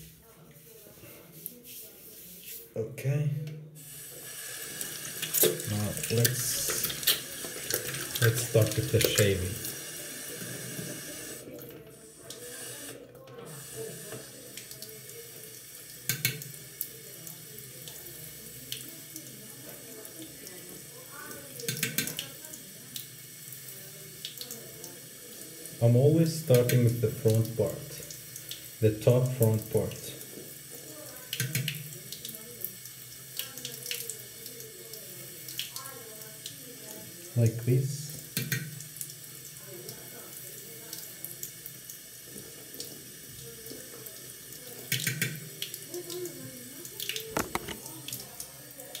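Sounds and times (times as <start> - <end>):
tap water running into sink: 3.8 - 49.0
tap running into sink: 5.1 - 11.2, 16.0 - 16.6, 21.6 - 22.3, 29.6 - 32.0, 38.2 - 38.9, 44.8 - 45.6, 47.1 - 48.2.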